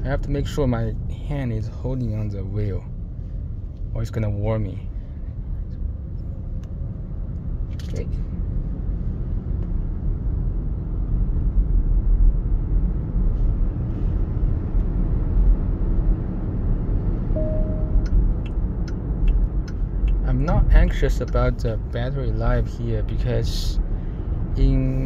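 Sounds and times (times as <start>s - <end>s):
road and tyre rumble: 0.0s - 25.0s
short single tone: 17.3s - 18.2s.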